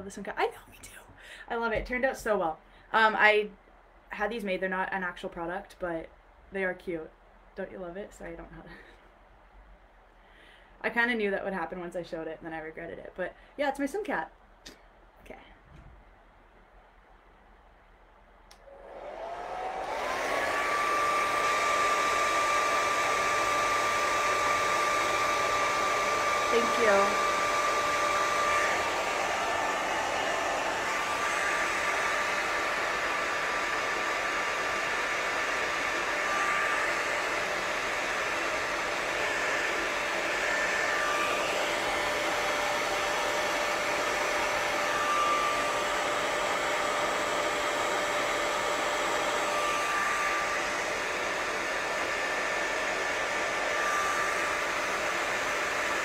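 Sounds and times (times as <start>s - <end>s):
hair dryer blowing air: 18.5s - 56.0s.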